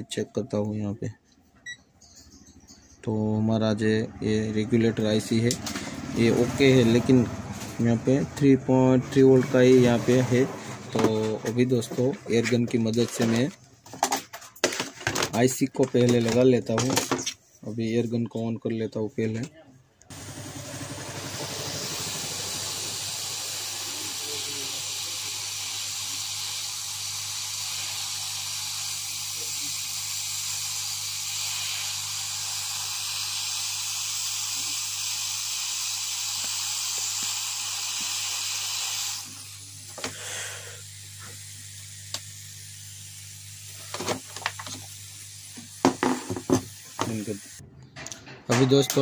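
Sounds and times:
hot air gun hissing: 5.1 - 8.1, 20.1 - 47.6.

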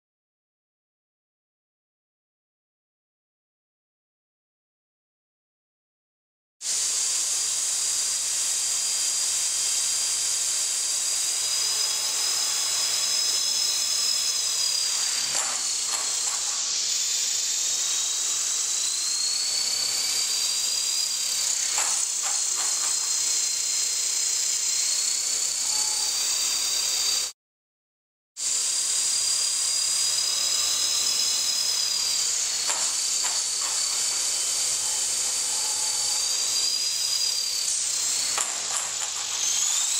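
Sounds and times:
rc helicopter motor whine: 6.6 - 27.4, 28.4 - 39.9.

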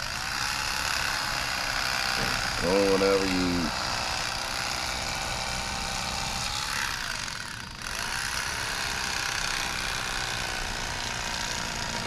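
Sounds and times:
electric fillet knife buzzing: 0.0 - 12.0.

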